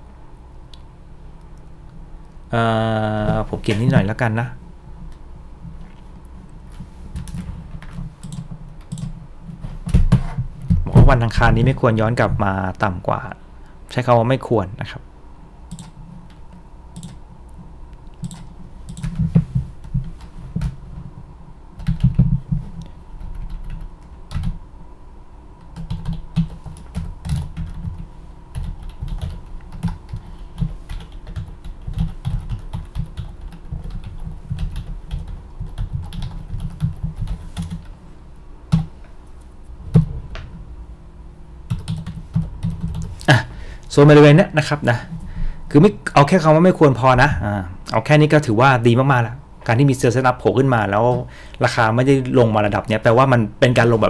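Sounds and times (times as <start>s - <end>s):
typing on computer keyboard: 7.2s - 9.1s, 15.7s - 16.0s, 18.2s - 19.3s, 21.8s - 22.2s, 23.2s - 24.6s, 25.7s - 37.9s, 41.7s - 43.1s.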